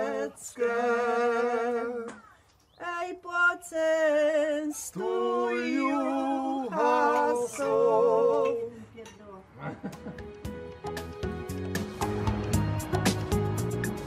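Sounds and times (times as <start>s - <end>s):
men and women singing unaccompanied: 0.0s - 8.9s.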